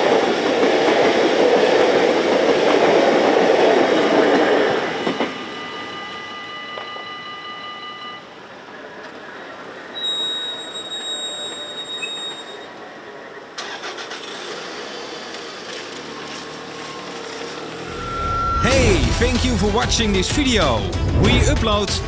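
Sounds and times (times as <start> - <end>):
high steady squeal: 4.8 - 13.4, 17.6 - 19.1.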